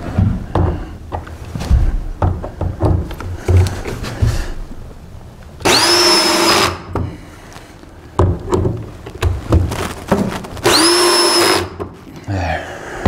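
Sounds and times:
cordless drill motor: 5.6s - 6.8s, 10.6s - 11.7s.

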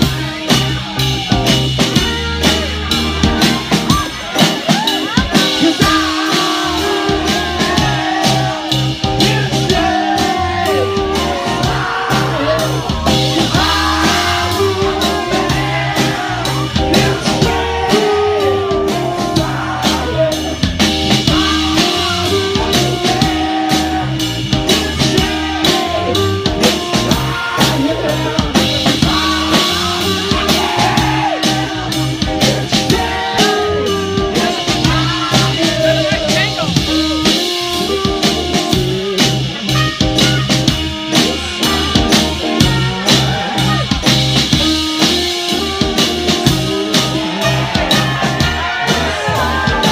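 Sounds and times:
drum kit: 0.0s - 49.9s
electric guitar: 0.0s - 49.9s
keyboards: 0.0s - 49.9s
person singing into a microphone: 5.0s - 20.7s, 21.3s - 36.7s.

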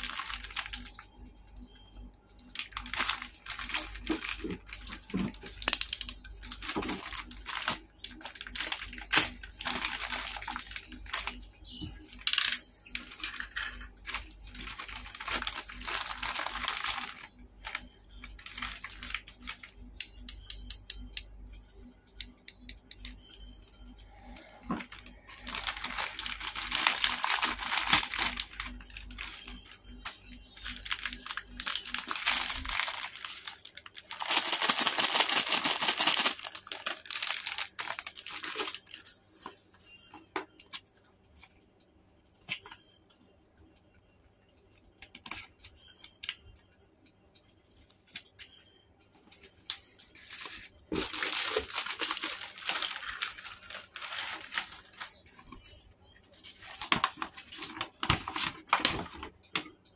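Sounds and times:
plastic bags crinkling and tearing: 0.0s - 1.2s, 2.4s - 19.8s, 24.4s - 39.8s, 49.4s - 59.7s.

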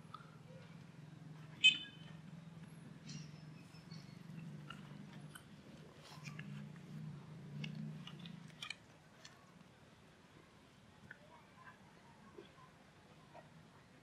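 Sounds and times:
steady low hum: 0.0s - 11.1s.

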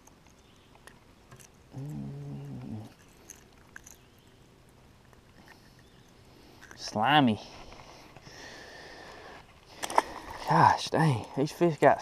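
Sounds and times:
low hummed voice: 1.7s - 3.0s.

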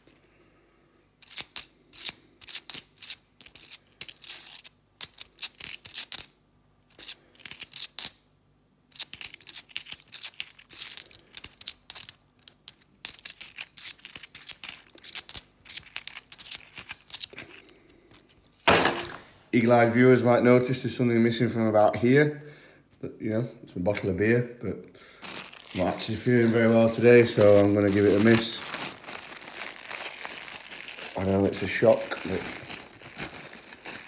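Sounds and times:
coins clinking in hand: 1.2s - 6.3s, 6.9s - 8.2s, 8.9s - 19.2s, 26.7s - 29.0s.

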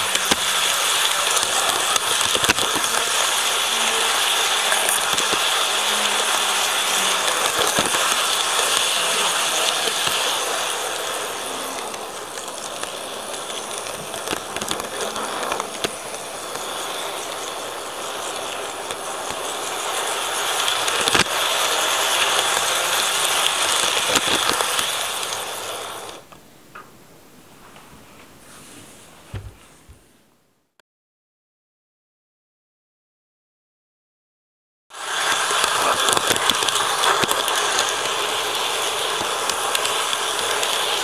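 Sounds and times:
wheels clicking over rail joints: 0.0s - 26.3s, 34.9s - 41.0s
model train rolling on track: 0.0s - 26.4s, 34.9s - 41.0s.

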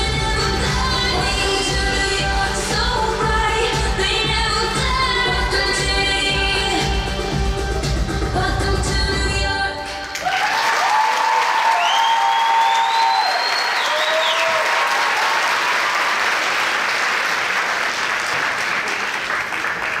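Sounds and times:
shouts and whoops: 10.1s - 16.2s
audience applauding: 10.1s - 20.0s.

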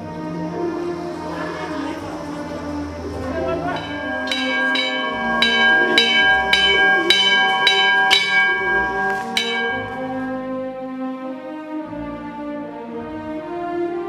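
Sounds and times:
metal temple bells ringing: 3.7s - 10.7s.

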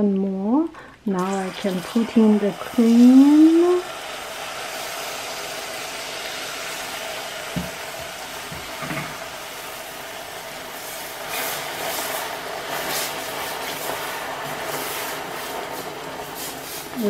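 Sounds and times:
caramel bubbling and sizzling: 0.0s - 17.0s
cream pouring: 1.2s - 17.0s
knock: 7.6s - 7.8s
wooden spoon stirring and scraping: 10.8s - 17.0s.

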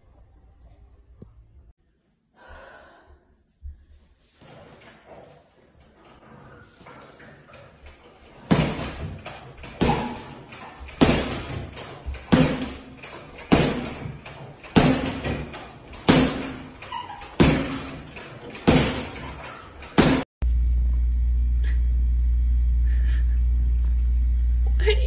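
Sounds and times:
boxing gloves thudding on punching bag: 8.4s - 20.3s.

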